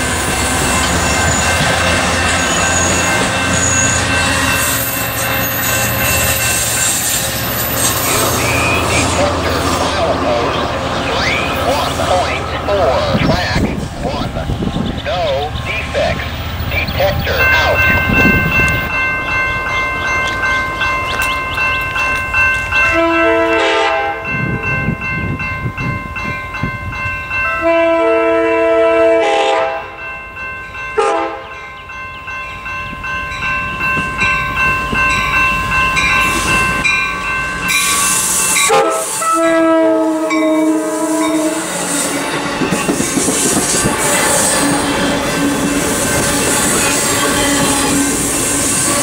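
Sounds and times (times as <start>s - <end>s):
train wheels rumbling on rails: 0.0s - 27.4s, 32.1s - 49.0s
locomotive horn: 22.8s - 24.4s, 27.4s - 30.0s, 31.0s - 31.5s, 38.1s - 43.0s, 43.6s - 49.0s.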